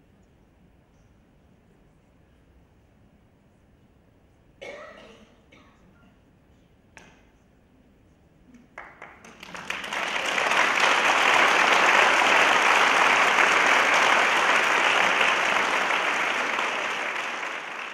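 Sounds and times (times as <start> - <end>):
audience applause: 8.8 - 17.9.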